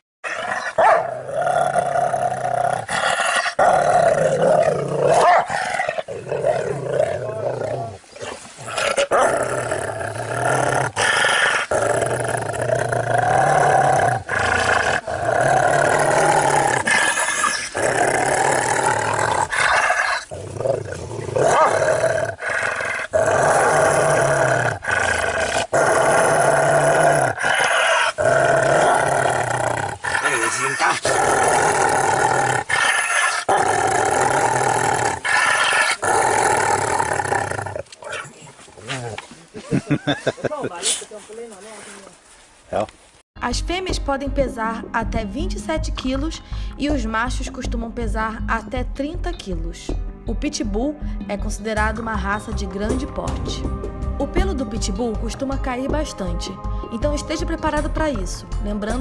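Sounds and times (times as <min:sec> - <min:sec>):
dog growling: 0:00.2 - 0:39.4.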